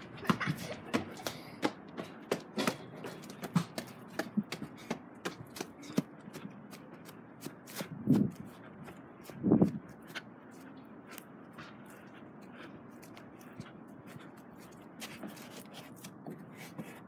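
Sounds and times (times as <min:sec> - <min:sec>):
quick footsteps: 0:00.0 - 0:17.0.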